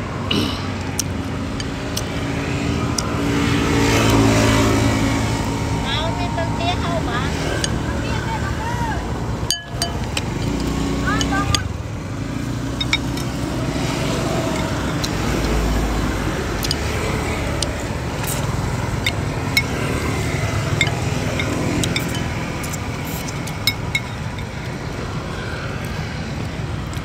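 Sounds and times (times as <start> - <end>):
road traffic rumble: 0.0 - 27.0
spoon and chopsticks clicking on bowl: 9.5 - 11.6, 20.7 - 24.3.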